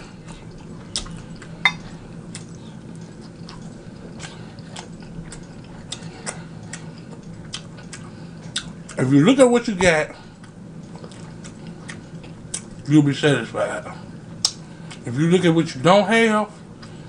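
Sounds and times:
faint steady hum: 0.0 - 17.0
close chewing: 0.1 - 9.1, 10.2 - 12.8.

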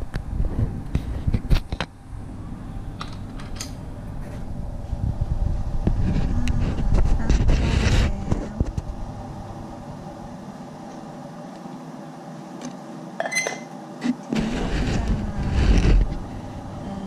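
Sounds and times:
faint steady hum: 0.0 - 17.0
short metallic ring: 13.2 - 13.7.

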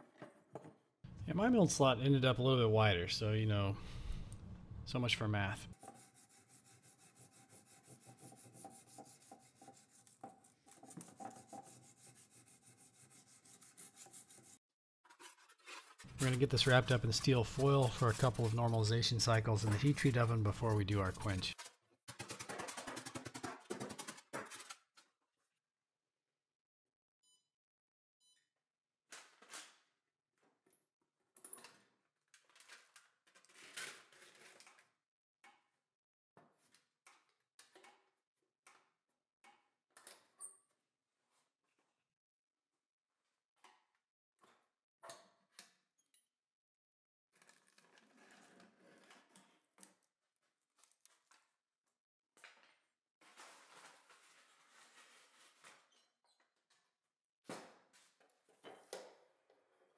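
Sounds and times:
hand file rubbing on steel: 5.7 - 14.6, 15.2 - 21.4
faint clicks and scrapes: 15.1 - 24.8, 31.5 - 34.9, 47.4 - 50.0.

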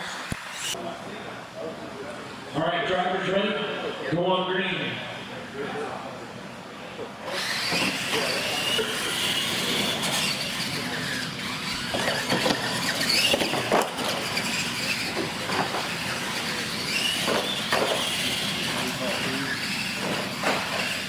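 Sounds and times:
model truck motors whining: 7.2 - 21.0.

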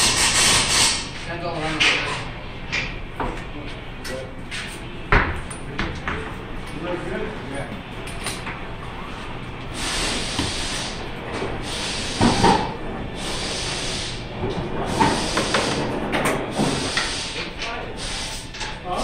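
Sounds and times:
pressurised gas hissing: 9.7 - 11.0, 11.6 - 15.9, 16.5 - 18.6.

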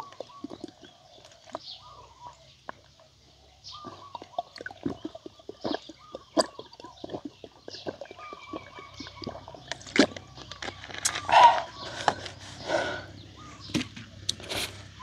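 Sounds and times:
man gulping water: 0.0 - 1.7, 3.7 - 13.1.

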